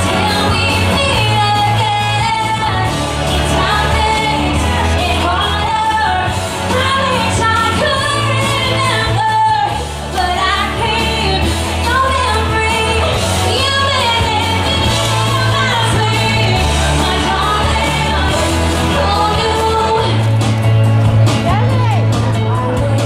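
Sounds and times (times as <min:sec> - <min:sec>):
person singing pop song: 0:00.0 - 0:23.0
steady bass line: 0:00.0 - 0:23.0.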